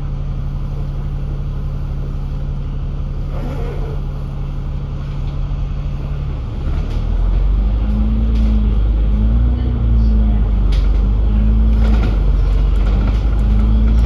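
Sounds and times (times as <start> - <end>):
bus engine running: 0.0 - 14.0.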